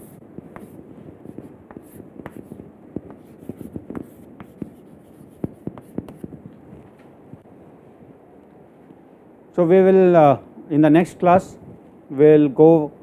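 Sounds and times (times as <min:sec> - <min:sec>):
chalk scratching on chalkboard: 0:00.0 - 0:06.4
chalk tapping on chalkboard: 0:00.0 - 0:06.5.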